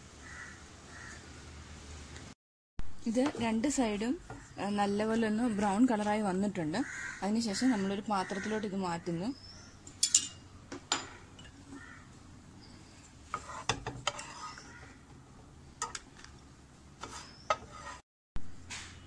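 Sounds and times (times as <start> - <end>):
wooden spatula scraping frying pan: 13.2 - 15.0, 17.0 - 18.0.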